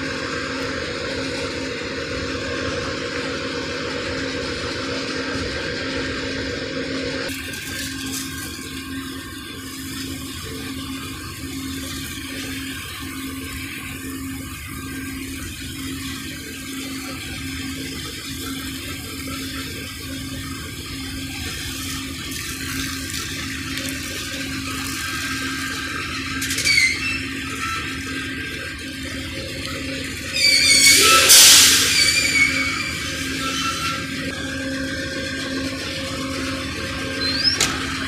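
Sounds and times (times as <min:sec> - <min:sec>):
low pulsing hum: 0:00.0 - 0:38.0
hose water spraying on metal: 0:07.3 - 0:34.4
high squeal: 0:23.8 - 0:38.0.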